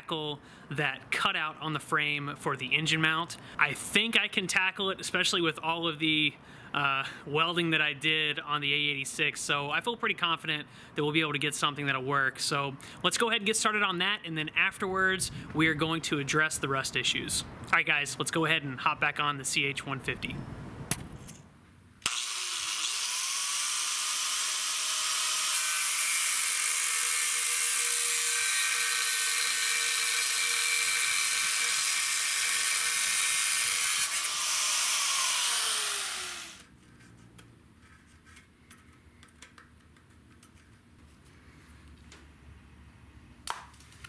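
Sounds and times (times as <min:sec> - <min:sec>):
angle grinder cutting steel: 0:22.0 - 0:36.7.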